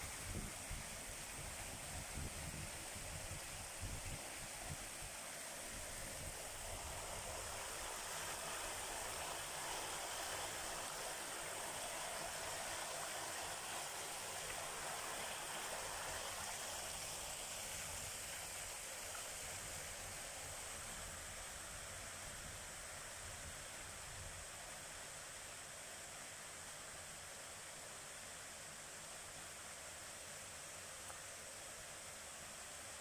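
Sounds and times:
stream rushing over rocks: 0.0s - 21.8s.

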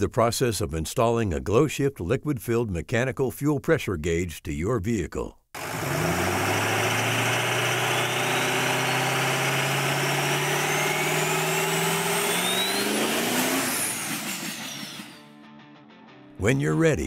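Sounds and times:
car engine revving: 5.6s - 15.1s
thin rising whistle: 7.5s - 15.2s.

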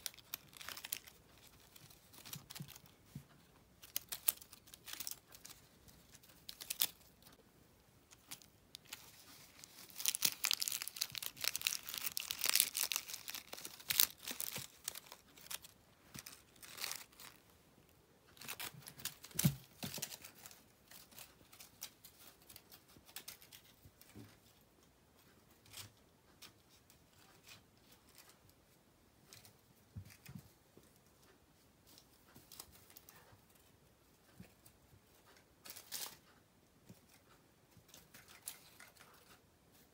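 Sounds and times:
foil toy crinkling: 0.0s - 3.2s, 3.8s - 7.4s, 8.1s - 17.4s, 18.3s - 23.8s.

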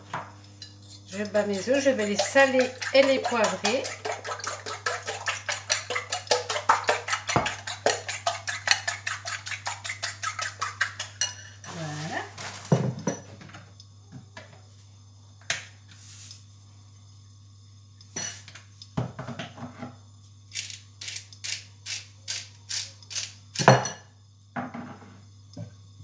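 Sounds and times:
steady low hum: 0.0s - 9.6s.

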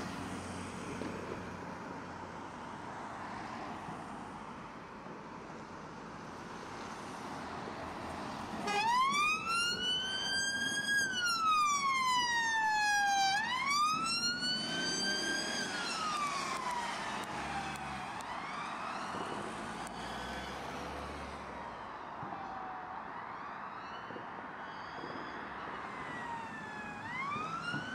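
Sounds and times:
road and engine noise: 0.0s - 27.9s
police siren wailing: 8.6s - 27.9s.

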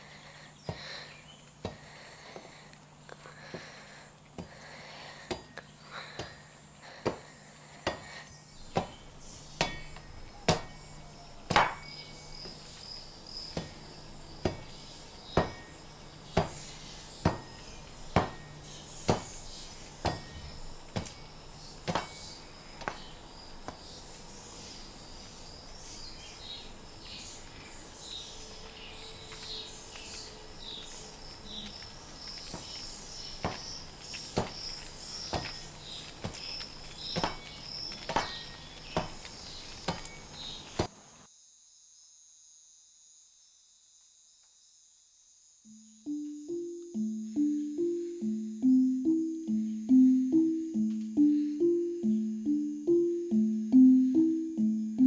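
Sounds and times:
insects chirping: 0.0s - 55.0s
machete chopping wood: 7.8s - 23.9s, 32.2s - 40.9s.

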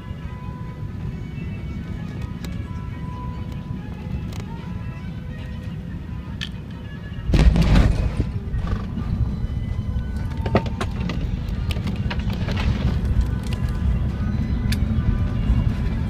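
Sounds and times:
airplane landing roll roar: 0.0s - 16.0s
landing gear thud: 7.3s - 8.4s.

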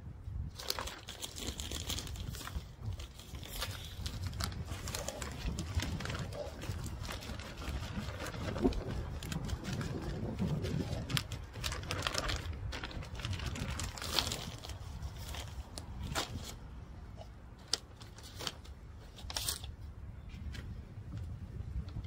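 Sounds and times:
wind rumble on microphone: 0.0s - 17.2s, 18.9s - 22.0s
plastic bag crinkling: 0.6s - 16.6s.

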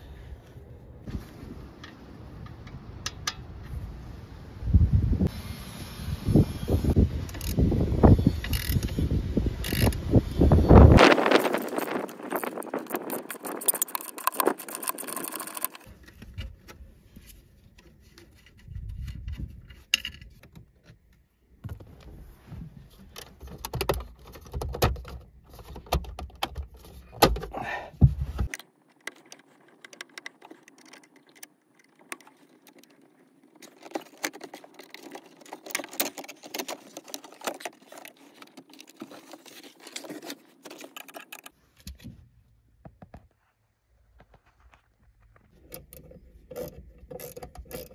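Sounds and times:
metal tools clinking and rattling: 11.1s - 15.9s, 29.0s - 41.5s.

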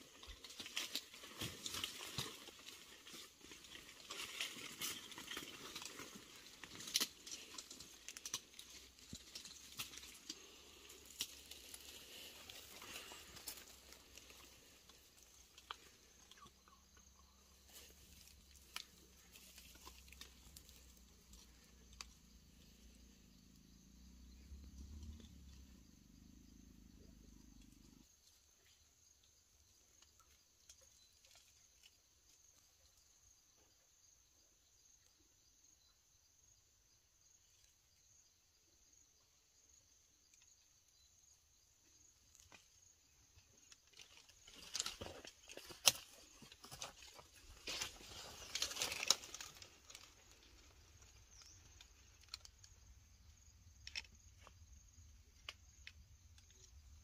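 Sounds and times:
leaves and twigs crackling: 0.0s - 26.4s, 42.2s - 57.0s
faint low hum: 4.9s - 28.8s.

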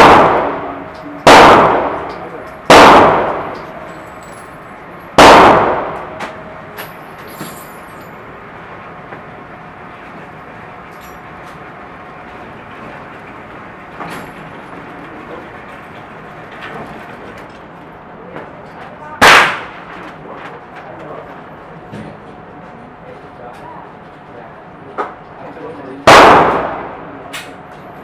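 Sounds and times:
gunshot echoing indoors: 0.0s - 3.8s, 5.2s - 6.4s, 19.2s - 19.8s, 26.0s - 27.1s
steady background noise: 0.0s - 28.0s.

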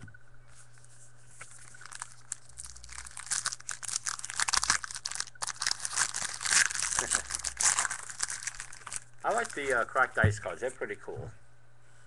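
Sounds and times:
wrapper tearing and crinkling: 1.5s - 9.9s.

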